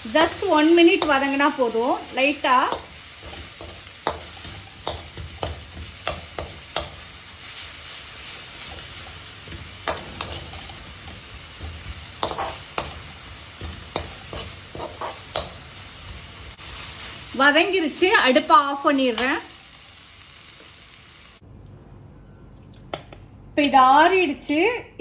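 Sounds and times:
leaves sizzling in oil: 0.0s - 21.4s
metal spoon scraping pan: 8.6s - 15.6s.

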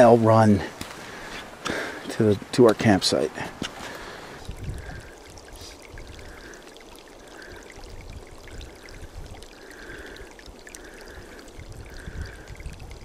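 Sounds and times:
water trickling with gurgles: 0.0s - 13.0s
wind rumble on microphone: 4.4s - 6.4s, 7.8s - 9.4s, 11.2s - 13.0s.

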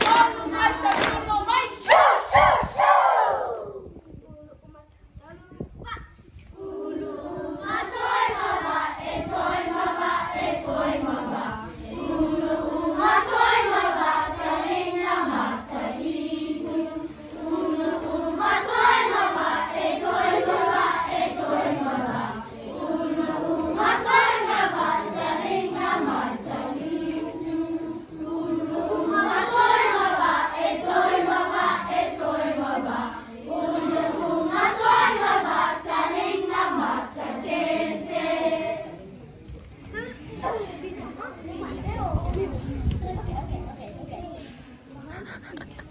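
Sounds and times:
children's choir singing: 0.0s - 3.7s, 6.4s - 39.1s.

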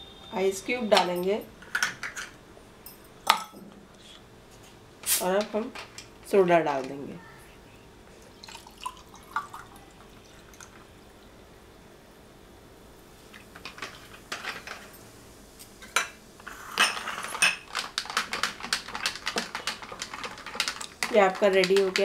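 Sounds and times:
soda water pouring over ice: 8.4s - 10.7s.

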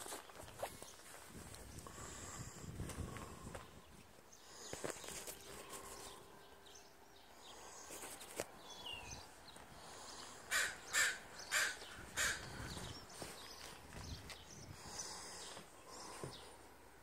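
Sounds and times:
crow cawing: 10.2s - 12.8s.

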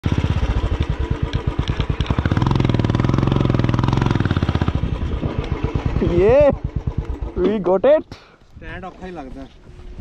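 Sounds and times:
motorcycle engine revving: 0.0s - 8.0s.

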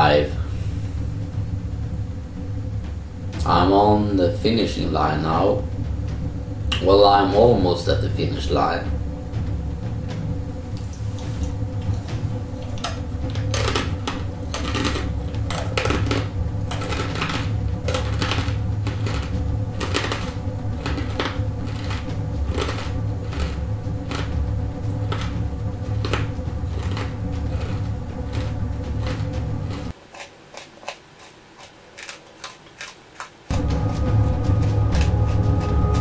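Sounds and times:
steady low hum: 0.0s - 36.0s
crunchy peanuts being chewed: 13.6s - 33.5s.

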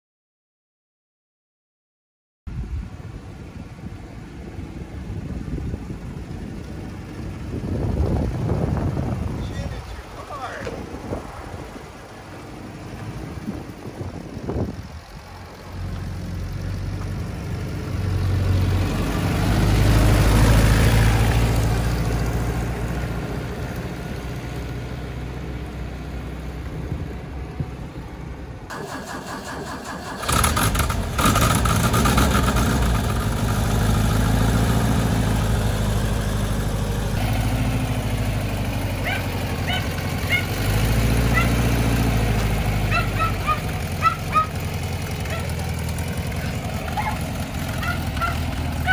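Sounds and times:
truck engine driving past: 4.7s - 48.9s
engine idling: 28.7s - 48.9s.

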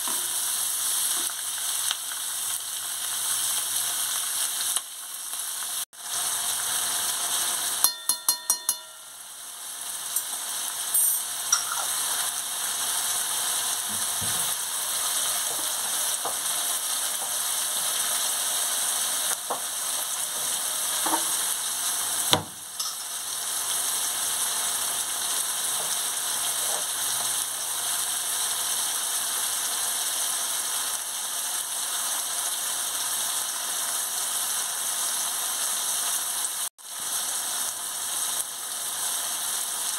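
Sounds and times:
onions sizzling in hot oil: 0.0s - 39.9s
ringing taps: 7.9s - 9.1s
sharp knock: 22.3s - 22.6s.

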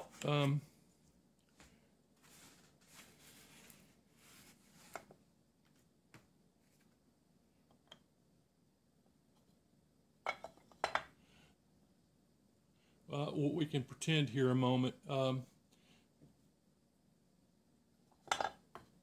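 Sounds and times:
handling rustles: 0.0s - 5.9s.

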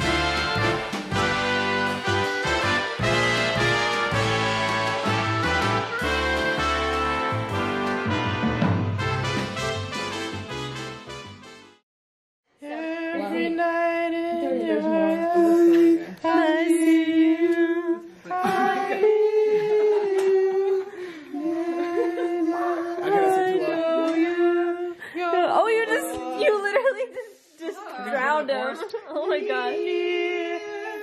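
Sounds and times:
brass music: 0.0s - 11.8s.

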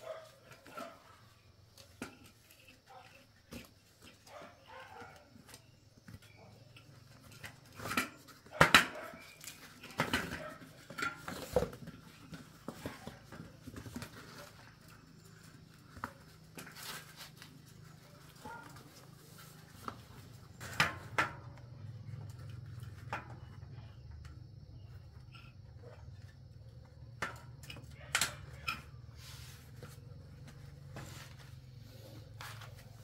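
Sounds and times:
bicycle tyre scuffing off rim: 29.1s - 33.0s.

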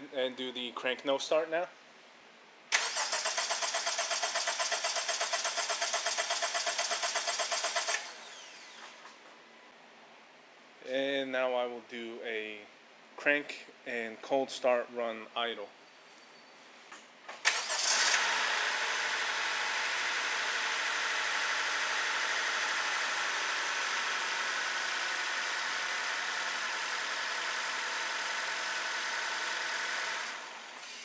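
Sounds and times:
car engine cranking and idling: 2.8s - 8.8s.

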